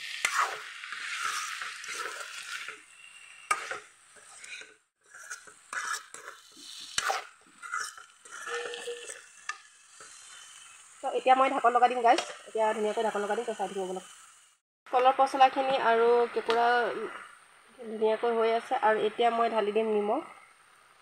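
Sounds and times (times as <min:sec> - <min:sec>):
spatula scraping pan: 0:00.0 - 0:13.6
food sizzling in oil: 0:00.0 - 0:14.6.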